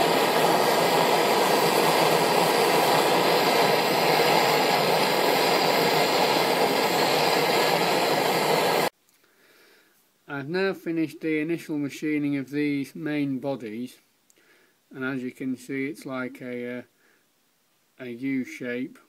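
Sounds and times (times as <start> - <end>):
blowtorch hissing: 0.0 - 8.9.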